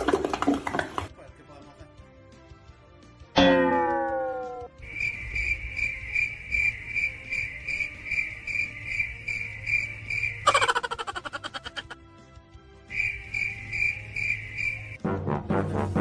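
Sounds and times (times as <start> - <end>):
high cricket chirping: 4.8 - 12.0, 12.9 - 15.0.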